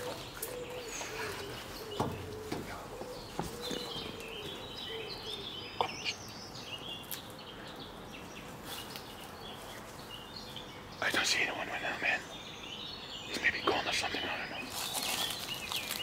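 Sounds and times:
dove-like coo: 0.0 - 6.1
birds twittering: 0.0 - 16.0
faint knocks: 1.8 - 4.6.

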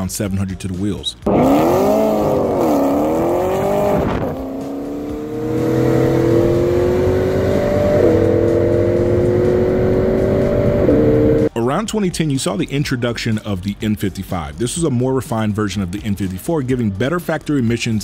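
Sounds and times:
car engine accelerating hard: 1.2 - 11.5.

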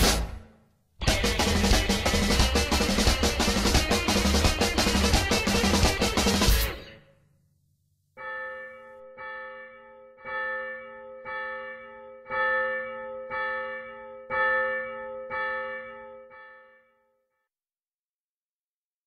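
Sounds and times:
bell tolling: 8.2 - 17.0.

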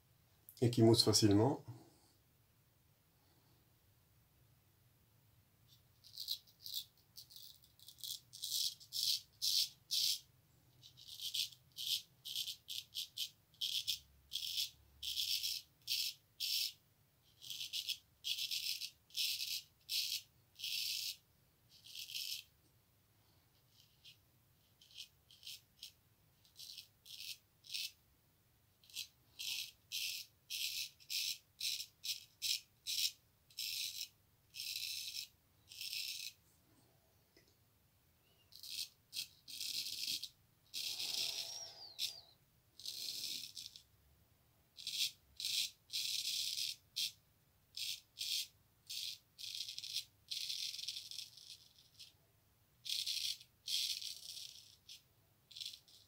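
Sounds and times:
razor scraping stubble: 38.5 - 43.8.

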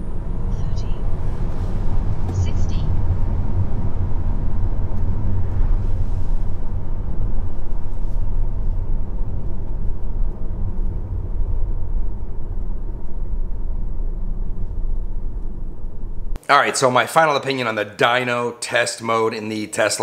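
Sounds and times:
car road rumble: 0.0 - 16.4.

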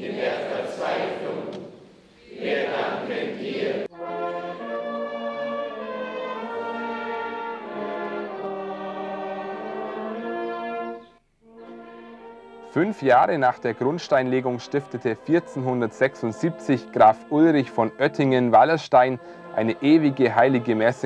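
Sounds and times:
brass chorale: 0.0 - 21.0
choir singing: 0.0 - 21.0.

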